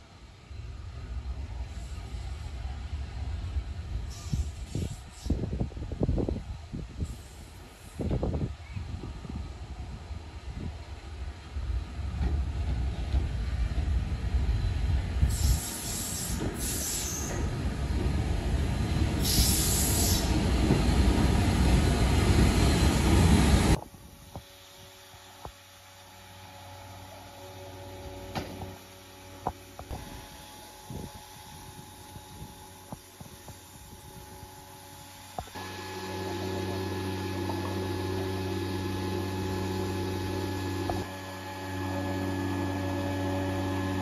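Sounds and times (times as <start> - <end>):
train wheels rumbling on rail: 0.0 - 25.8.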